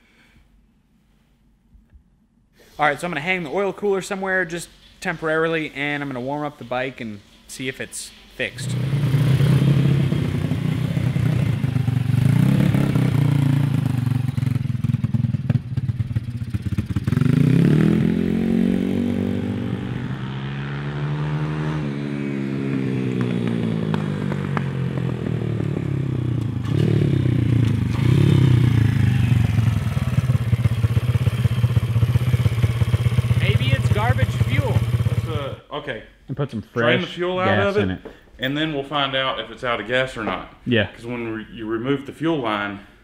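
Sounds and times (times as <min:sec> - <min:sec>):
motorbike engine revving: 0:08.5 - 0:35.6.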